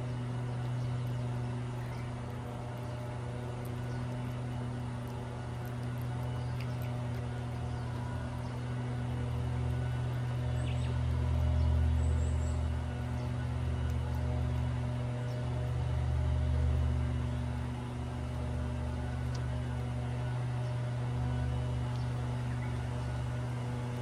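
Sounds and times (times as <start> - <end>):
lawn mower engine running: 0.0 - 24.0.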